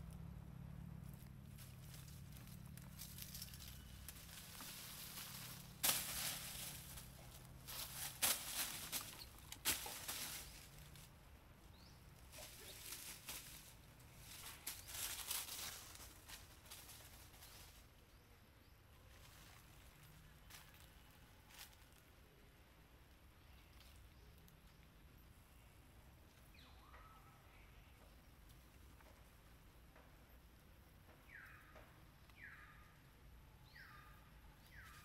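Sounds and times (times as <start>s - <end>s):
branches crackling: 0.0s - 18.1s, 19.1s - 22.2s
leaves and branches rustling: 0.0s - 18.3s, 18.9s - 29.7s, 34.6s - 35.0s.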